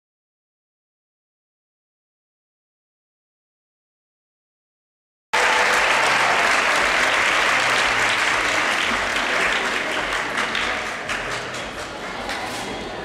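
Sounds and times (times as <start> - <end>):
audience applause: 5.4 - 12.2.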